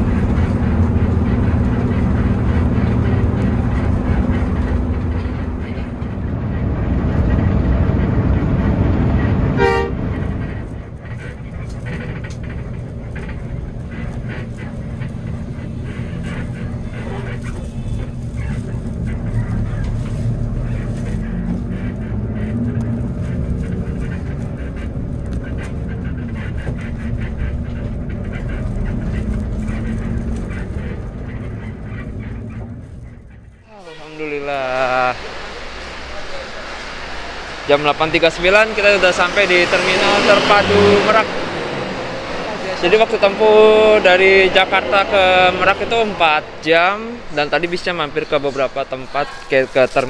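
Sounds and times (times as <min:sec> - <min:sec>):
vehicle engine rumble: 0:00.0 - 0:50.0
vehicle horn toot: 0:09.6 - 0:10.0, 0:33.7 - 0:34.9.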